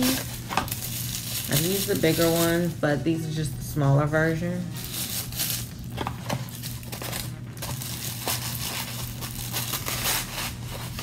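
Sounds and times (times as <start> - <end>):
plastic and paper crinkling: 0.0 - 2.8, 4.2 - 11.0.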